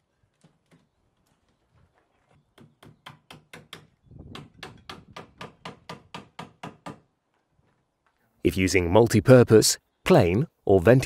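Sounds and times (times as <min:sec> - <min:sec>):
hammer driving nails: 0:02.5 - 0:07.1.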